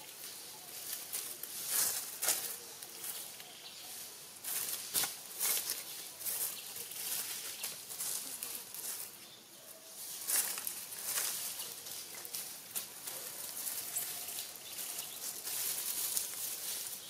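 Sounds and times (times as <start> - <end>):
dry leaves rustling and crackling: 0.0 - 17.0.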